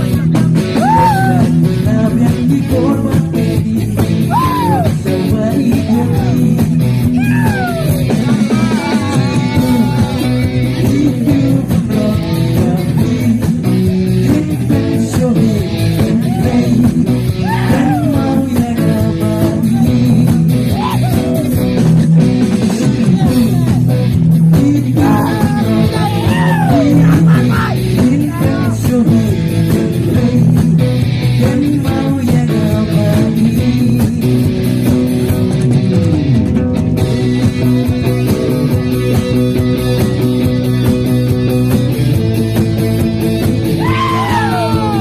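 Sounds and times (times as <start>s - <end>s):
bass guitar: 0.0s - 45.0s
drum kit: 0.0s - 45.0s
electric guitars: 0.0s - 45.0s
man singing into a microphone: 0.8s - 21.7s, 22.6s - 34.6s.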